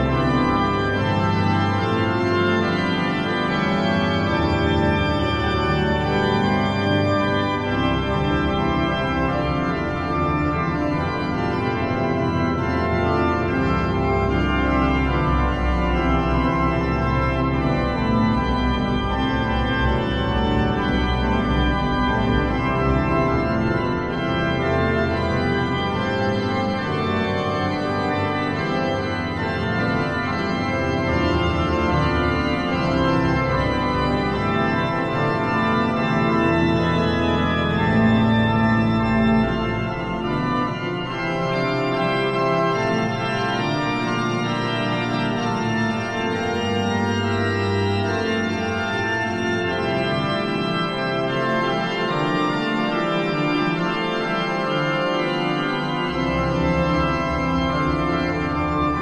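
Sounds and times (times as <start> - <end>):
pipe organ music: 0.0 - 59.0.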